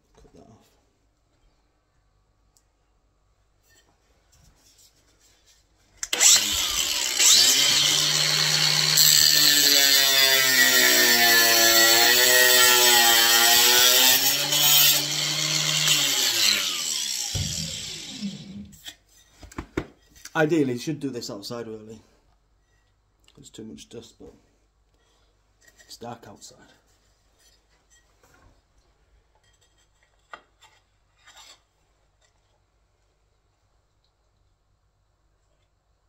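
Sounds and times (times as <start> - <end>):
angle grinder cutting tile: 6.0 - 18.9.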